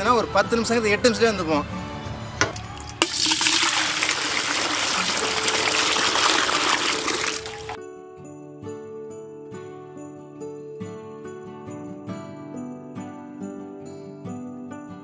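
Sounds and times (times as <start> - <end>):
music with jingling bells: 4.5 - 15.0.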